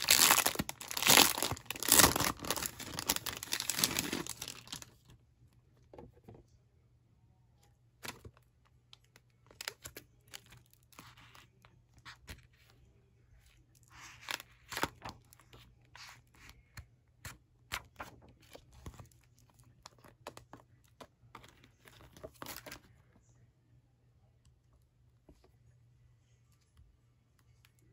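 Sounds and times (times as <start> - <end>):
plastic and paper crinkling: 0.0 - 5.1, 17.7 - 22.8.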